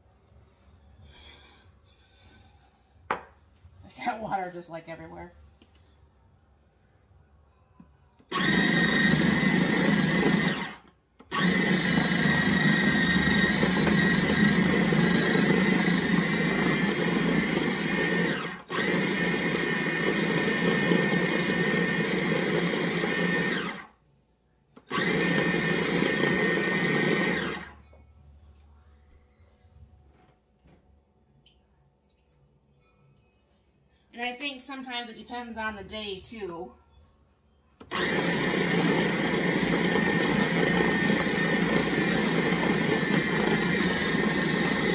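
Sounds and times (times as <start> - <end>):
food processor motor running: 8.3 - 23.9, 24.8 - 27.8, 37.8 - 44.9.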